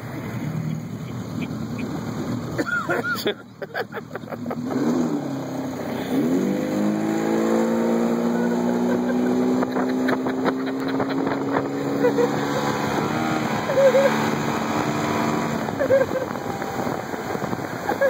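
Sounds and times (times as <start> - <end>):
boat motor running up: 4.4 - 18.0.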